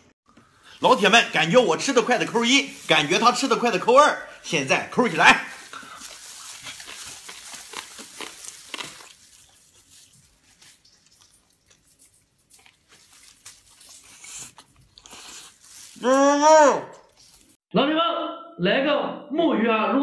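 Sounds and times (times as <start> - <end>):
people chewing crunchy food: 0.3 - 17.6
wet mouth sounds: 5.6 - 17.6.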